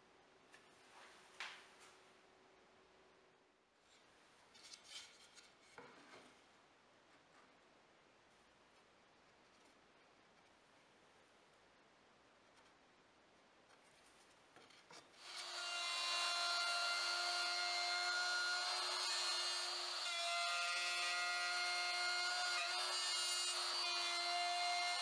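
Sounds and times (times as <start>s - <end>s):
router whining: 15.2s - 25.0s.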